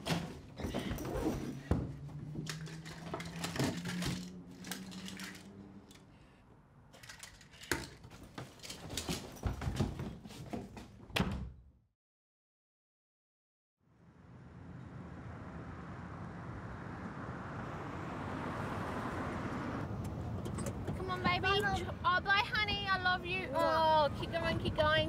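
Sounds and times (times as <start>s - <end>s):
plastic toys clattering: 2.4s - 6.0s, 6.9s - 10.0s.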